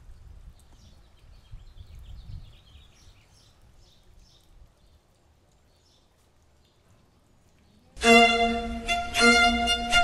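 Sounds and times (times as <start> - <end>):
small birds chirping: 0.0 - 8.0.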